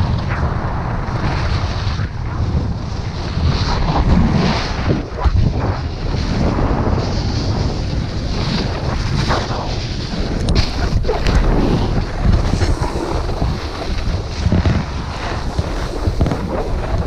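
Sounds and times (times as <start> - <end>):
snowboard carving across snow: 0.0 - 17.0
wind buffeting microphone: 0.0 - 17.0.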